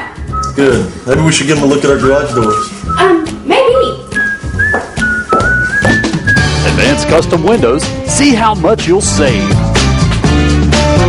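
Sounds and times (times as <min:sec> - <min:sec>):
person whistling a tune: 0:00.2 - 0:00.9, 0:01.9 - 0:03.2, 0:04.0 - 0:06.8
jingle music with bass and drums: 0:00.3 - 0:03.2, 0:04.2 - 0:11.0.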